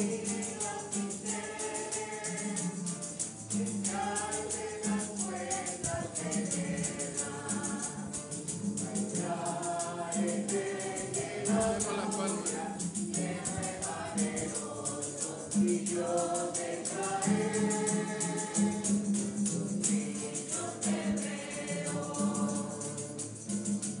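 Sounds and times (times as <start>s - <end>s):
choir singing a hymn: 0.0s - 23.6s
shaken percussion rhythm: 0.0s - 24.0s.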